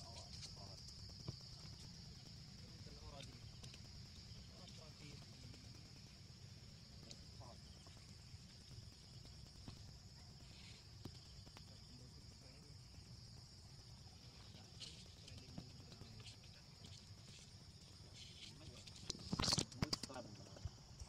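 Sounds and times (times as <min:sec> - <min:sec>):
faint ticks: 0:00.0 - 0:06.0
high-pitched insect drone: 0:00.0 - 0:21.0.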